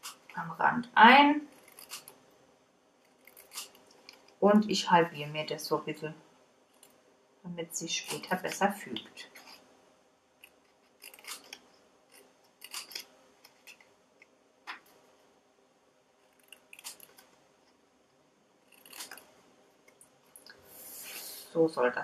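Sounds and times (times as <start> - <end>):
scissors snipping cardstock: 1.6 - 2.1, 3.2 - 4.2, 8.0 - 8.6, 10.4 - 13.8, 18.7 - 19.3.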